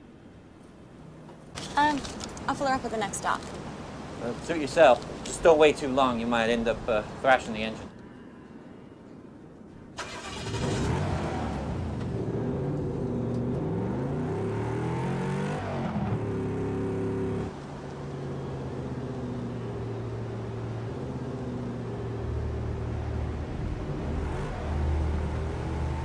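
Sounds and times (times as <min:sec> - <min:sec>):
car engine accelerating: 0:10.0 - 0:26.0.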